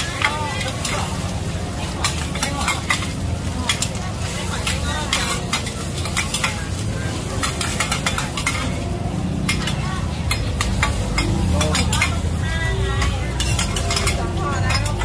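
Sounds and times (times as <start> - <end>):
food sizzling in hot oil: 0.0 - 15.0
metal spatulas scraping griddle: 0.6 - 8.8, 13.3 - 15.0.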